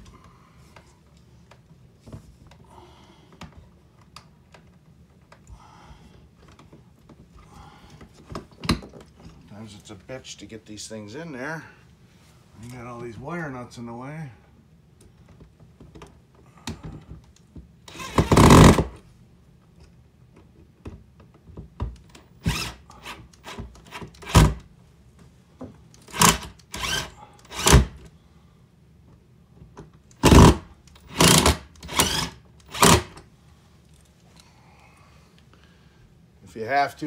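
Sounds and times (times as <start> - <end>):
cordless drill bursts: 17.9 - 18.9, 22.4 - 24.6, 26.1 - 28.0, 30.2 - 33.2.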